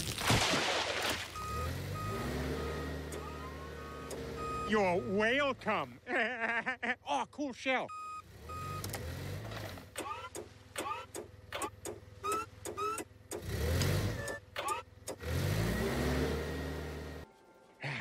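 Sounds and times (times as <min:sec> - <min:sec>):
cartoon engine revving: 0:01.5 - 0:05.1, 0:10.0 - 0:16.6.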